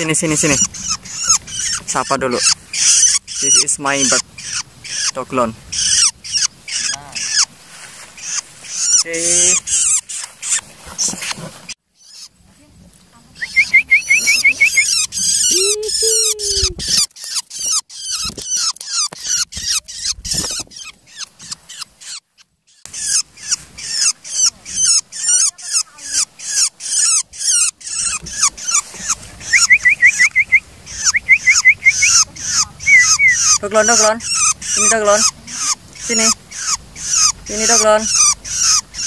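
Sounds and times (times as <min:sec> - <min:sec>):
shrike calling harsh high notes: 0:29.0 - 0:39.0.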